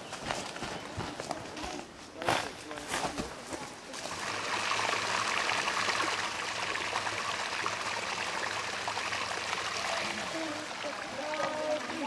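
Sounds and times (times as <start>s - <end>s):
running water rushing: 3.9s - 12.0s.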